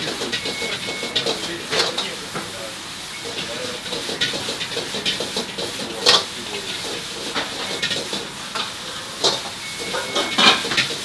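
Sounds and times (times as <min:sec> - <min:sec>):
vegetables sizzling in a hot pan: 0:00.0 - 0:11.0
metal spatula scraping a pan: 0:03.8 - 0:11.0.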